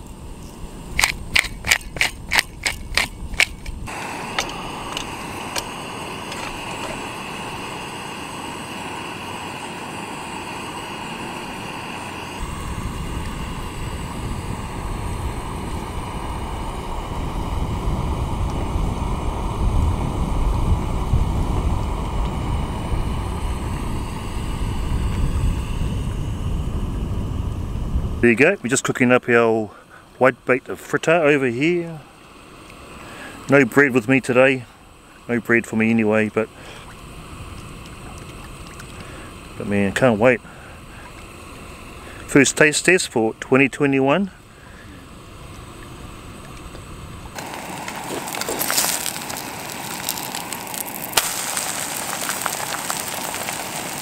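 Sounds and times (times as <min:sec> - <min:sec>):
wind rumbling on microphone: 0:00.0 - 0:08.0, 0:12.2 - 0:28.6
sharp clicks: 0:00.9 - 0:03.8
fritter sizzling in a frying pan: 0:47.4 - 0:54.0.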